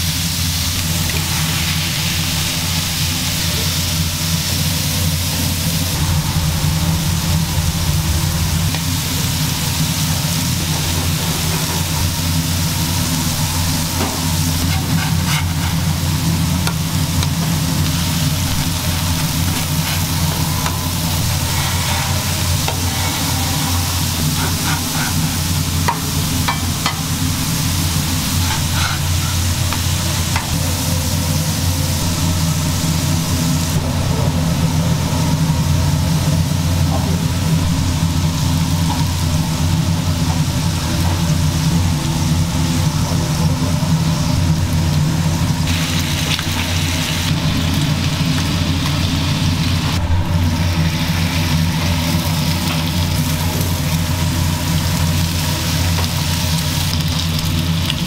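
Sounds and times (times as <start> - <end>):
burger patties sizzling on griddle: 0.0 - 58.0
low hum: 0.0 - 58.0
metal spatula scraping griddle: 5.7 - 31.5.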